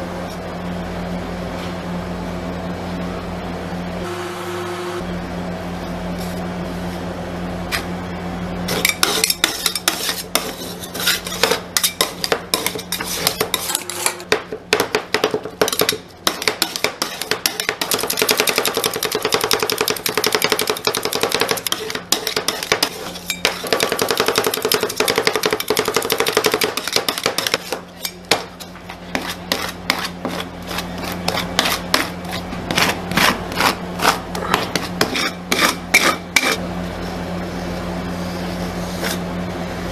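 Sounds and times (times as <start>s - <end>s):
low hum: 2.0s - 9.0s
spatulas scraping steel plate: 8.7s - 14.4s, 15.7s - 36.6s
metal spatulas clacking: 8.8s - 14.3s.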